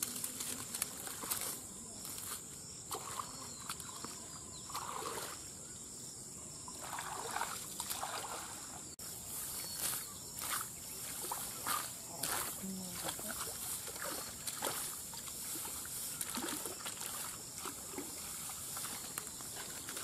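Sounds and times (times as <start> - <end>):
wet grass rustling: 0.0 - 5.4, 6.7 - 20.0
muddy water sloshing: 0.0 - 5.5, 6.7 - 20.0
splashy handling sounds: 6.8 - 8.7, 10.4 - 20.0.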